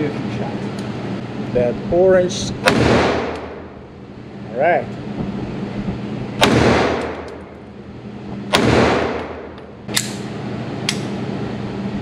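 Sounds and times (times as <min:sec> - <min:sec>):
sharp crack: 0:02.6 - 0:03.6, 0:06.4 - 0:07.4
pistol shots with long echo: 0:02.6 - 0:03.8, 0:06.4 - 0:07.5, 0:08.5 - 0:10.3.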